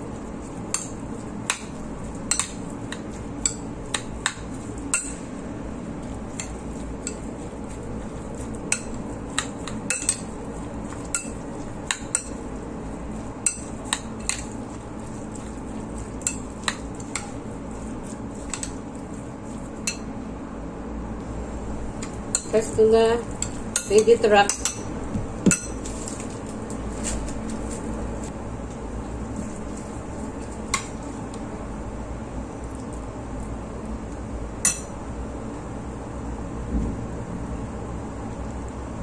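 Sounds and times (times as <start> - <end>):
steady low hum: 0.0 - 39.0
spoon clinking against bowl: 8.7 - 10.3, 11.0 - 12.4, 13.4 - 14.5.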